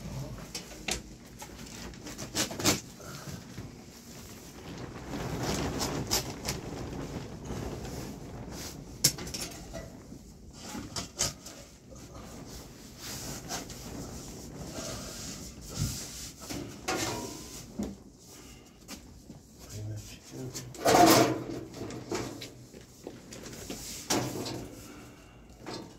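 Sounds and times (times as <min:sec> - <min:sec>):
sheet metal scraping and rubbing: 0:04.2 - 0:18.6, 0:20.5 - 0:25.9.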